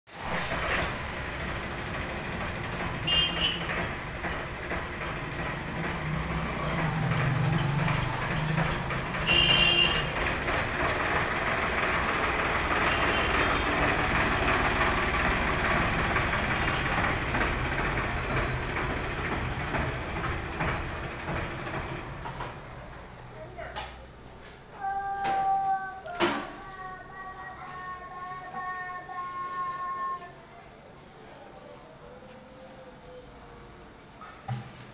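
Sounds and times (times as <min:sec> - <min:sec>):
tractor diesel engine running: 0:00.2 - 0:24.3.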